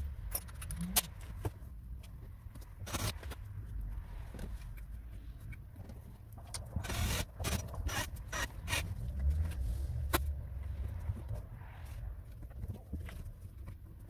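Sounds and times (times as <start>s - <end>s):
steady low rumble: 0.0s - 14.0s
cordless drill driving screws: 6.8s - 8.8s.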